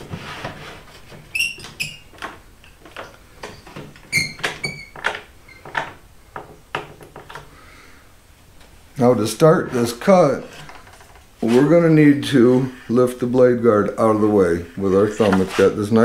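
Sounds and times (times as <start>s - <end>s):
clamp squeaks: 1.3s - 2.1s, 3.4s - 5.7s.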